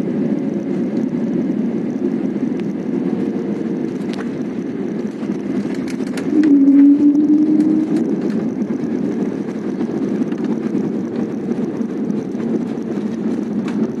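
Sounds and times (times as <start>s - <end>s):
jet engines and wheels rumbling: 0.0s - 14.0s
faint humming tone: 6.2s - 8.5s.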